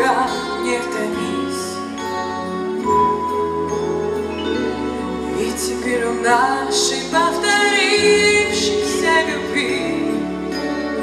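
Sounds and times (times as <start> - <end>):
woman singing a pop ballad: 0.0 - 2.0, 5.3 - 10.6
instrumental accompaniment: 0.0 - 11.0.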